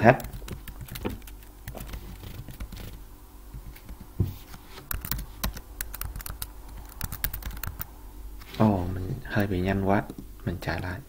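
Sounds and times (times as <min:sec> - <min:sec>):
typing on computer keyboard: 0:00.2 - 0:03.0, 0:04.9 - 0:07.9.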